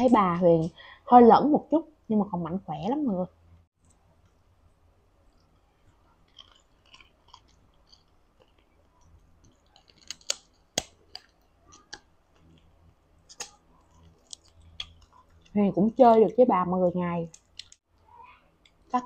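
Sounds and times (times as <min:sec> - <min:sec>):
chewing chicken: 0:06.0 - 0:10.4.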